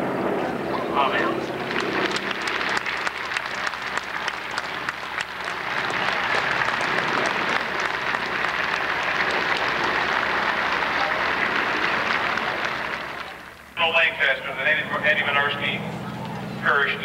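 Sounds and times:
crowd applauding: 1.4 - 13.6.

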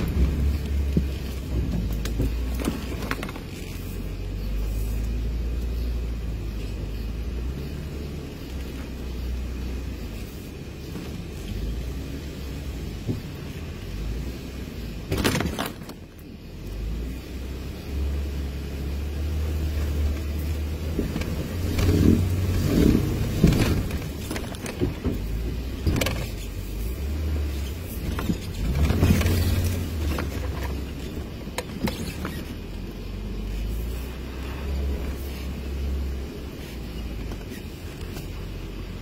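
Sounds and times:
vehicle knocks and rattles: 0.0 - 4.2, 12.8 - 13.8, 15.0 - 16.2, 19.7 - 32.6
off-road vehicle engine rumbling: 0.0 - 39.0.

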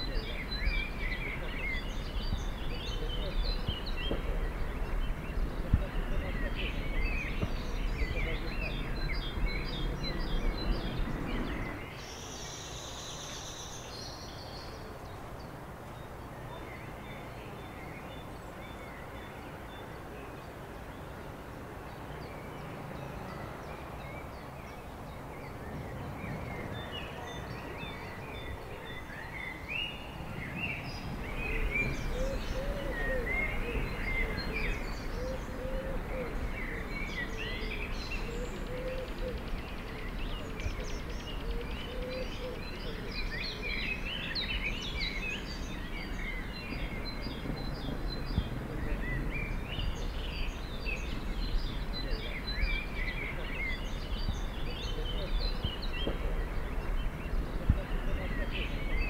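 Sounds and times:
birds chirping: 0.0 - 59.0
steady background hiss: 0.0 - 59.0
low cooing calls: 25.6 - 44.6.

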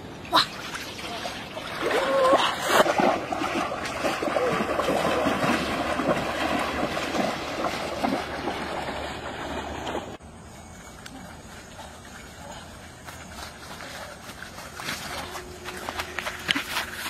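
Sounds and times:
water splashing against a raft: 0.3 - 10.2.

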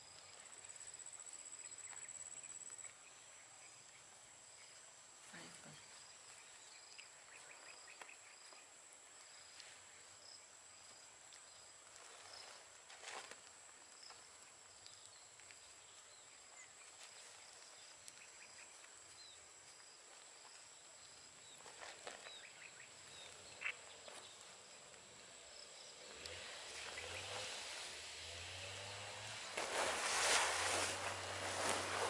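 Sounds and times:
soft rustles: 10.8 - 22.6, 29.5 - 32.0.

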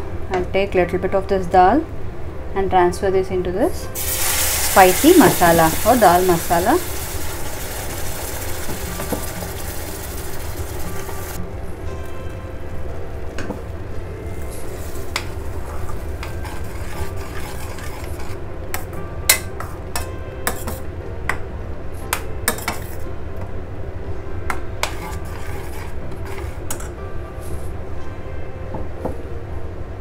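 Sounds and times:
metal spatula stirring in pan: 14.7 - 18.4, 24.8 - 26.9.

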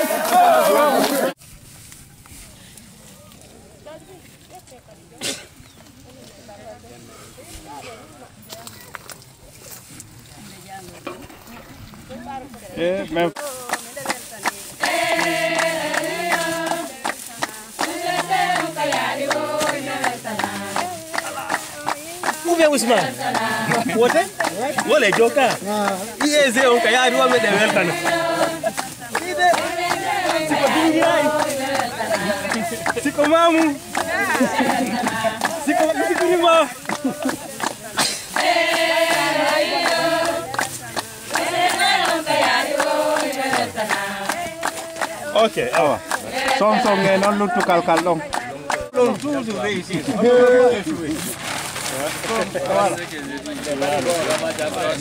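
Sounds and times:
group of voices chanting: 0.0 - 1.4, 14.0 - 49.0
rhythmic hand clapping: 12.4 - 51.1.

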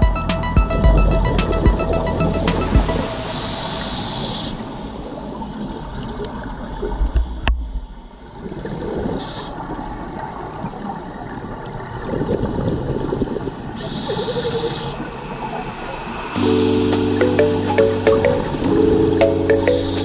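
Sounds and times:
underwater noise: 0.6 - 20.0
exhaled bubbles gurgling: 0.7 - 7.4, 8.3 - 16.2
regulator breathing hiss: 1.8 - 5.7, 16.1 - 20.0.

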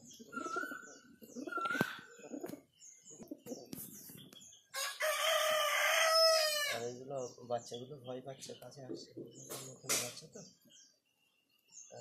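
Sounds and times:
pigeons cooing: 0.0 - 7.7
small birds chirping: 0.0 - 12.0.

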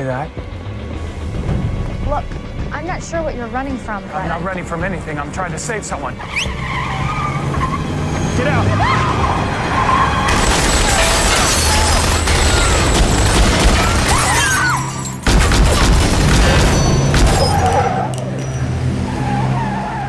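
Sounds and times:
tense film score: 0.0 - 20.0
rapid gunfire: 10.3 - 14.4, 15.3 - 17.4
glass shattering: 10.3 - 17.9.

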